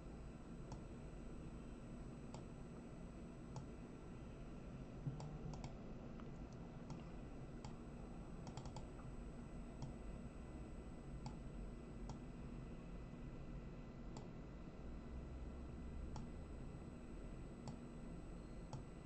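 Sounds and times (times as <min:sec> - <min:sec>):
low steady hum: 0:00.0 - 0:19.0
computer mouse clicking: 0:05.1 - 0:05.8, 0:07.6 - 0:07.8, 0:08.4 - 0:09.0, 0:14.1 - 0:14.3, 0:16.1 - 0:16.3.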